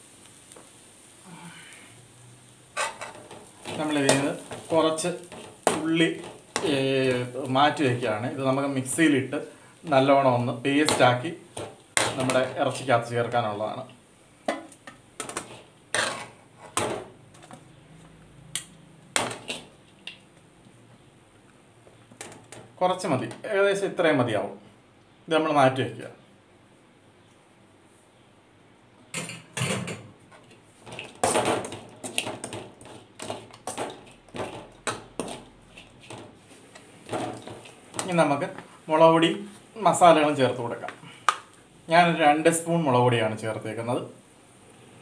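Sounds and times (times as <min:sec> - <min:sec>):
metal spoon scraping steel pan: 0:02.8 - 0:06.7, 0:15.2 - 0:16.8, 0:32.0 - 0:38.2.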